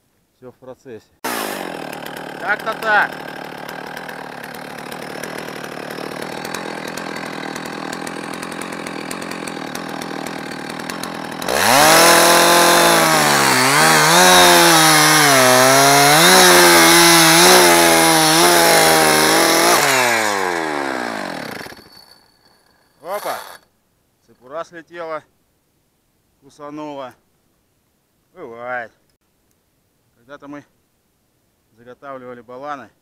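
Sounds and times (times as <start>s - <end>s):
chainsaw cutting through log: 1.2s - 23.6s.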